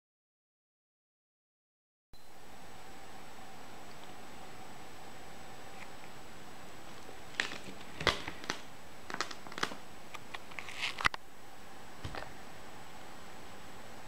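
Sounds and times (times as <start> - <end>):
small clicks and crackles: 6.9 - 11.2.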